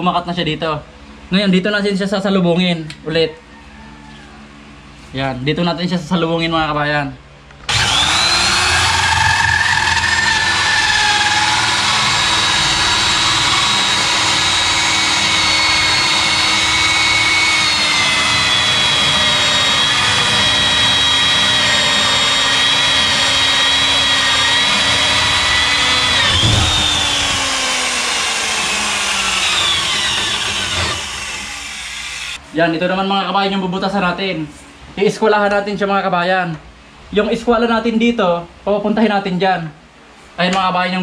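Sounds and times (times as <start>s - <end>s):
electric drill whining through wood: 7.7s - 32.4s
knock: 26.2s - 27.6s.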